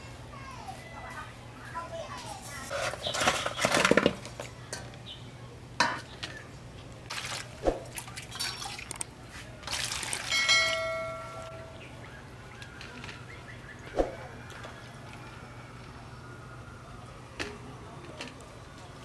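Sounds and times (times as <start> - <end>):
water splashing in a metal basin: 7.1 - 11.6.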